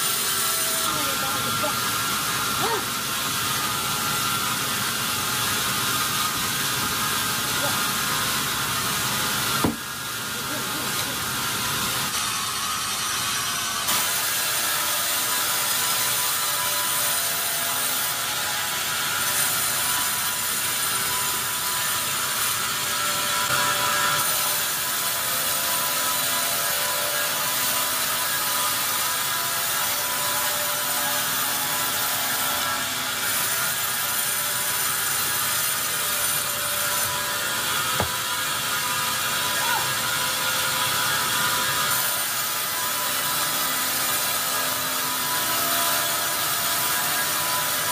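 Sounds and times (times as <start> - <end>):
hiss of saw cutting log: 13.8 - 18.2.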